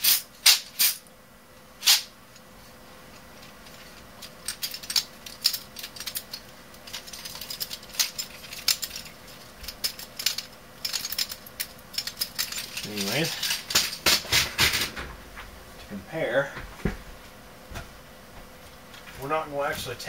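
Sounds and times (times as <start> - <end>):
keyboard keys clicking and rattling: 3.6 - 14.0.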